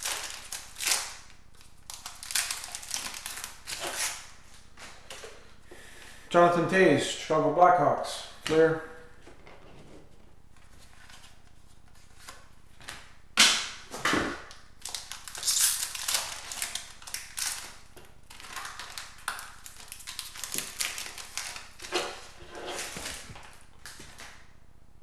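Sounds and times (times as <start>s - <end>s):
card wrapper crinkling: 0.0s - 4.3s, 14.5s - 24.4s.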